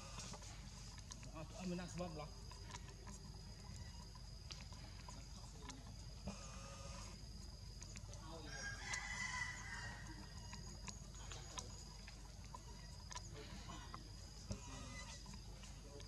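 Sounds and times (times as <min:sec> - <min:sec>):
rooster crowing: 0:08.4 - 0:10.6.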